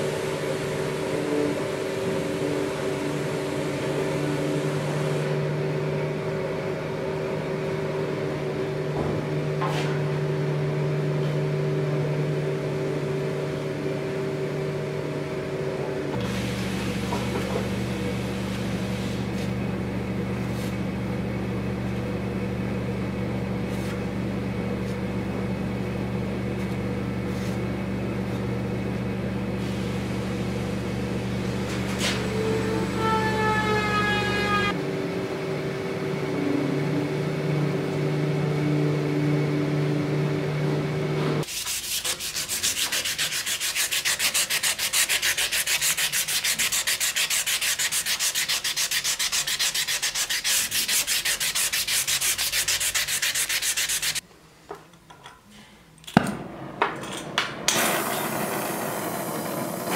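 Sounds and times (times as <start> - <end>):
steady machine hum: 0.0 - 41.5
falling machine whine: 28.6 - 41.4, 56.2 - 59.9
sandpaper rubbing on metal blade: 41.4 - 54.2.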